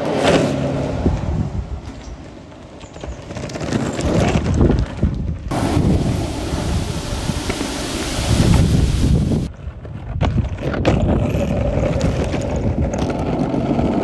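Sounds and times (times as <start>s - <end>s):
skateboard wheels rolling on asphalt: 0.0s - 14.0s
wind buffeting microphone: 4.0s - 14.0s.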